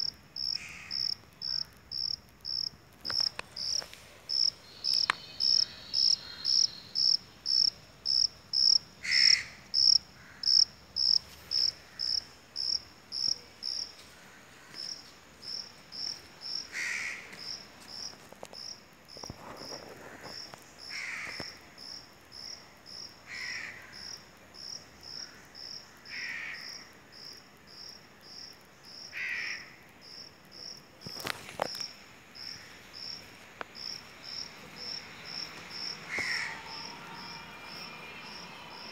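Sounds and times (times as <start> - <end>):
insect chirping: 0.0 - 14.1, 14.7 - 38.9.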